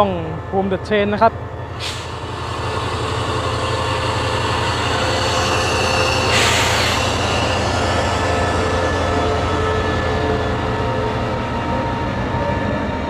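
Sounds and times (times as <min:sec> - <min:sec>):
locomotive engine drone: 0:00.0 - 0:13.0.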